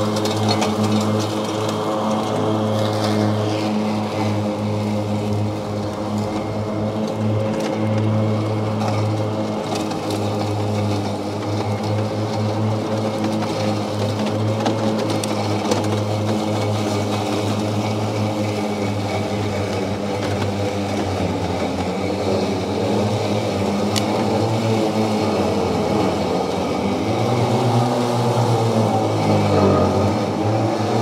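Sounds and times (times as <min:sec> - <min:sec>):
electric mower motor humming: 0:00.0 - 0:31.0.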